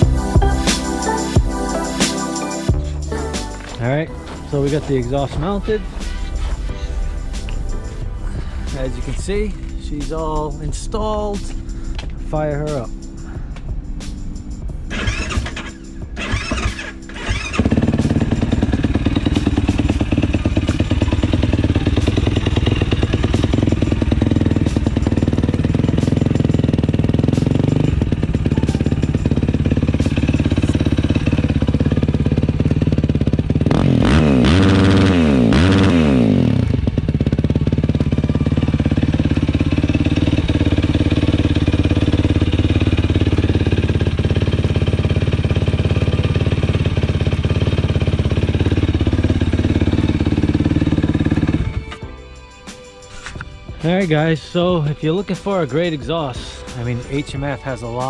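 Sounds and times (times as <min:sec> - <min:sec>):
quad engine idling and revving: 0:00.0 - 0:06.8, 0:14.9 - 0:52.5.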